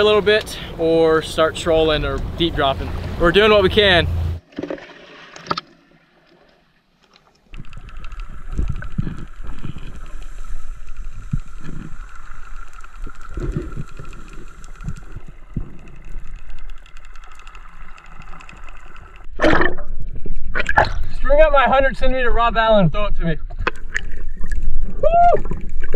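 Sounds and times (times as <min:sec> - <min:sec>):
rapid clicking underwater: 0:04.4 - 0:21.1, 0:23.5 - 0:25.9
underwater knocks and thumps: 0:13.3 - 0:21.1.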